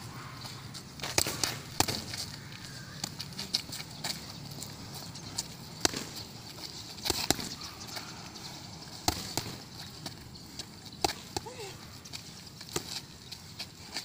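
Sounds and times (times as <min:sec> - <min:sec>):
boxing gloves smacking mitts: 0:01.0 - 0:02.3, 0:05.4 - 0:08.0, 0:08.9 - 0:11.6.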